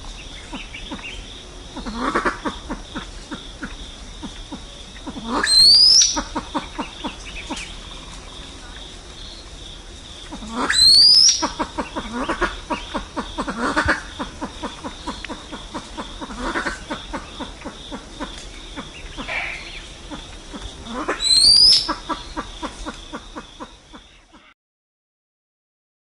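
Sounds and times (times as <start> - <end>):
pheasant low clucks: 1.8 - 8.2, 10.2 - 24.5
shrill rising bird call: 5.4 - 6.2, 10.7 - 11.5, 21.2 - 21.9.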